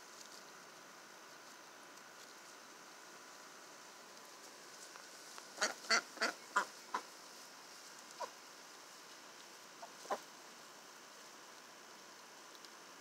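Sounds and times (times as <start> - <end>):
ducks quacking: 5.6 - 7.1, 9.8 - 10.3.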